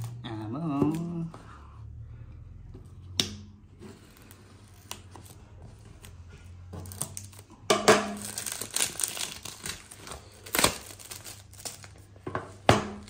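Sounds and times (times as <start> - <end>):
plastic wrap crinkling: 4.0 - 12.6.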